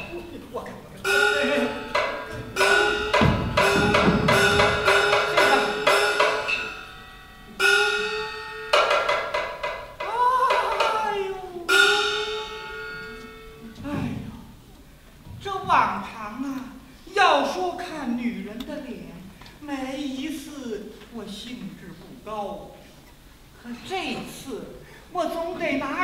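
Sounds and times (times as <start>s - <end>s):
clapper knocks: 1.0s - 6.9s, 7.6s - 11.1s
gong strokes ringing: 1.0s - 13.8s.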